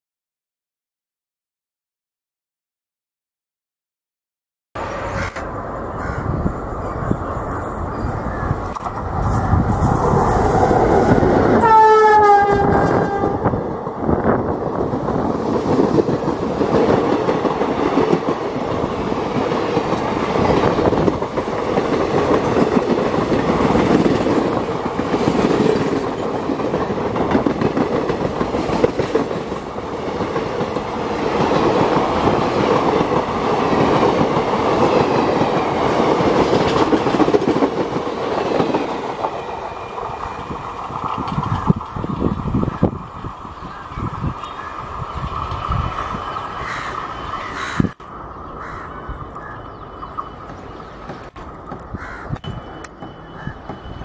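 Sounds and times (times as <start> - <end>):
train coaches rumbling: 4.8 - 54.0
wheels clicking over rail joints: 7.8 - 42.2
locomotive horn: 11.6 - 13.6.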